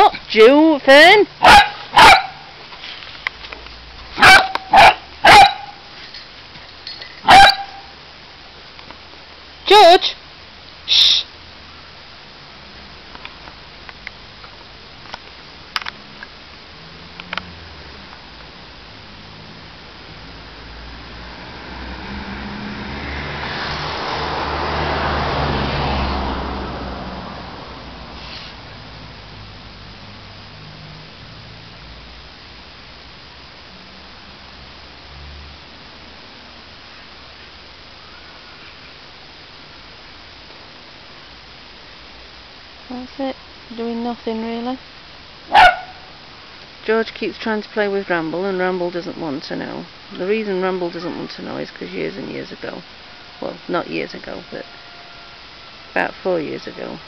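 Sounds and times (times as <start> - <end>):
puppy barking: 1.4 - 2.5, 4.2 - 5.9, 7.2 - 7.9, 45.5 - 46.1
vehicle passing by: 16.0 - 32.1, 33.7 - 36.6.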